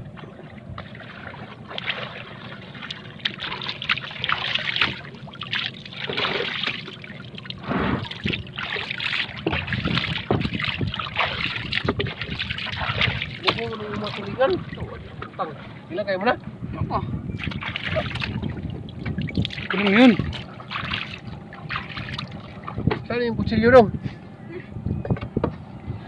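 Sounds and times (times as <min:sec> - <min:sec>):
water splashing and trickling: 0:00.0 - 0:23.3
low hum: 0:00.0 - 0:26.0
knocks of fish in a tub: 0:03.2 - 0:14.3.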